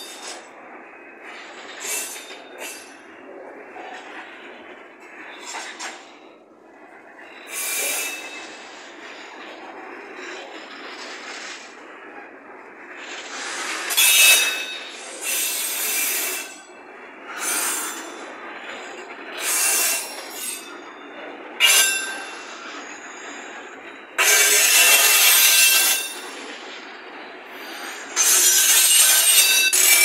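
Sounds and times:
wheels squealing against rails: 0.0 - 30.0.

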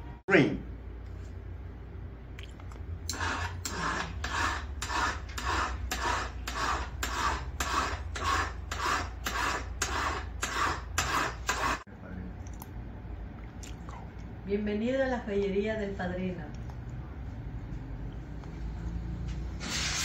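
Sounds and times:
file rasping on metal: 3.1 - 11.9.

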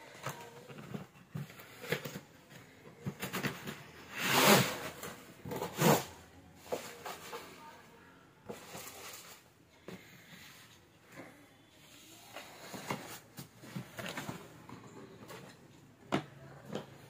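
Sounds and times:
cardboard box scraping on plastic: 3.1 - 7.4.

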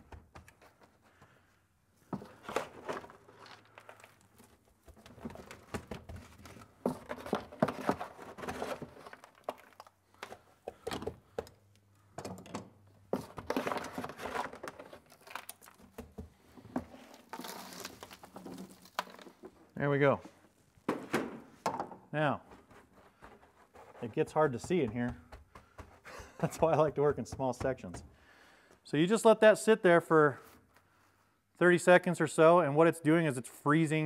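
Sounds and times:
dry ice crunching: 16.9 - 19.7.

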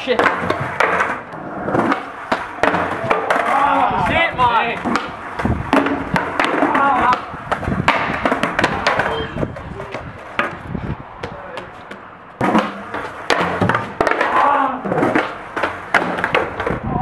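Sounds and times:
skateboard hitting tiled paving: 0.0 - 17.0
people calling out: 2.6 - 4.8, 6.6 - 7.4, 8.7 - 10.0, 14.2 - 14.9.

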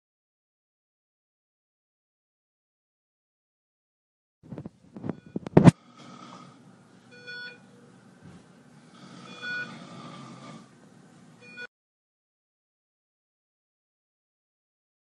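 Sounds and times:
steady hum: 4.5 - 11.6
short electronic beep: 11.4 - 11.7.

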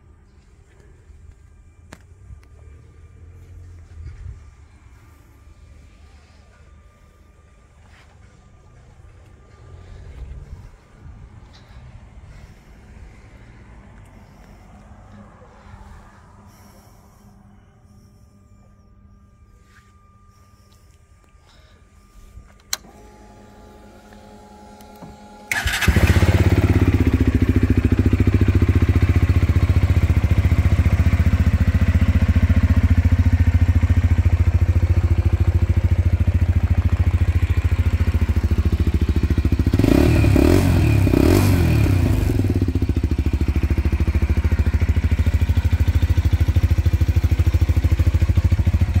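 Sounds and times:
electric starter cranking: 22.6 - 26.5
motorcycle engine idling: 25.5 - 49.0
motorcycle engine revving: 25.5 - 49.0.

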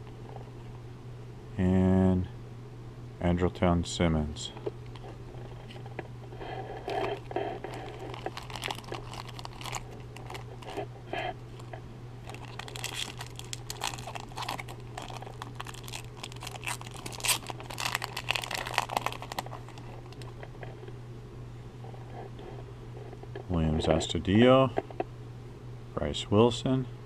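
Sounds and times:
steady low hum: 0.0 - 27.0
cards rustling: 6.4 - 10.9, 11.5 - 20.4
foil wrapper crinkling and tearing: 6.8 - 10.8, 11.5 - 20.4.

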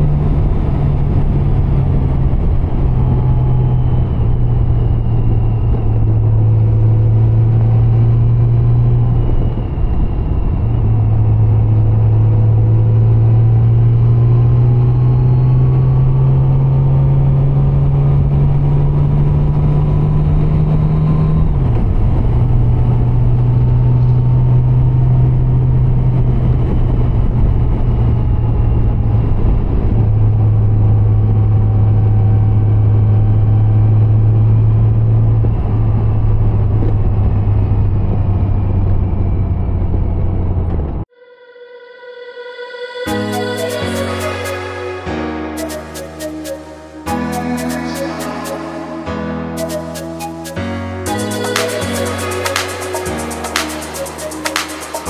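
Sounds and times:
motorcycle engine droning: 0.0 - 41.0.

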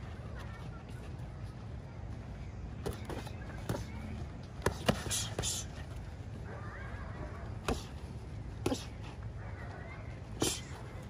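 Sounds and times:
boxing gloves slapping and thudding: 4.6 - 5.7.

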